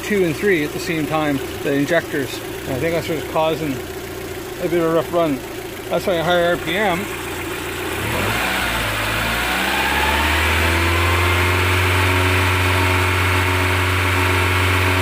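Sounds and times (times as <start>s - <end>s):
car engine revving: 6.2s - 15.0s.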